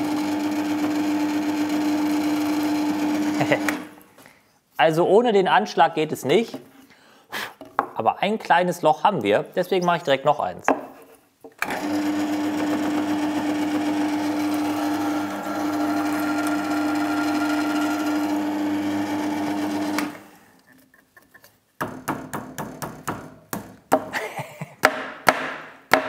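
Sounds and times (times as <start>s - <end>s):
drill press cutting wood: 0.0s - 3.9s, 11.6s - 20.4s.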